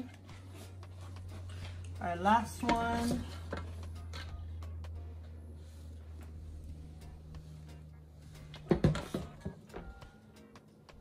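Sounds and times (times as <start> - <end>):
steady low hum: 0.0 - 10.6.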